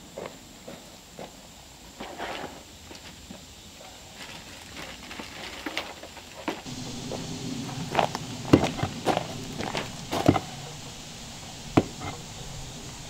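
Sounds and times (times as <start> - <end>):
footsteps: 4.1 - 13.0
low steady hum: 6.6 - 13.0
knocks and clanks on metal pipe: 8.0 - 10.8.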